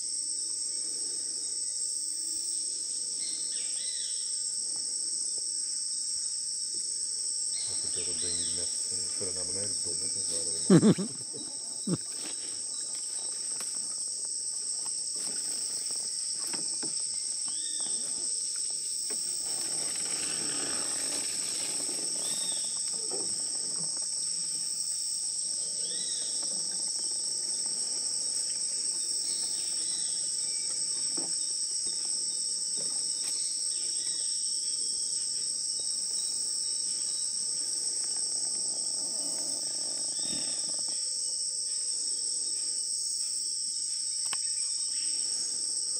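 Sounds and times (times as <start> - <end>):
insect chorus high drone: 0.0 - 45.9.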